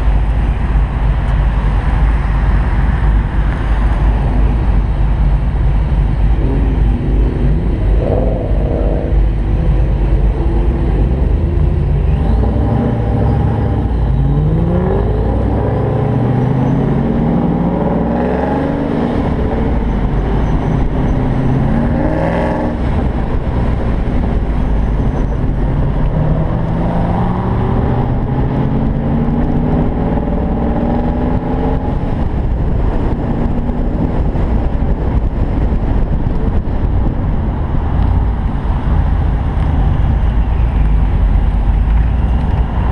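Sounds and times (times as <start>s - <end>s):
car engine accelerating: 0.0s - 42.9s
low wind rush: 0.0s - 42.9s.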